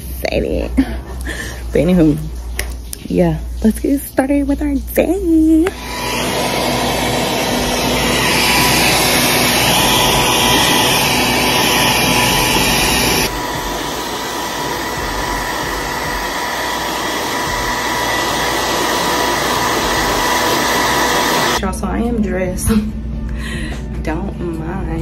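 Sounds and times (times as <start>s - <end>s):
hair dryer blowing: 5.6s - 21.6s.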